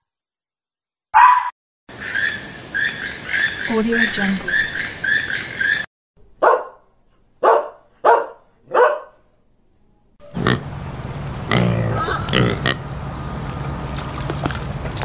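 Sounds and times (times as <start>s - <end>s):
dog barking: 1.2s - 1.5s, 6.4s - 9.2s
pig grunting: 10.3s - 10.7s, 11.4s - 12.8s.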